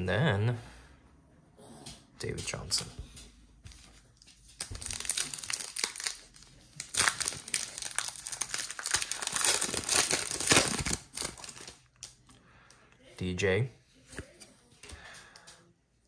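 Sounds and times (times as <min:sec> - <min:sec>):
plastic wrapper tearing and crinkling: 0:03.7 - 0:12.2.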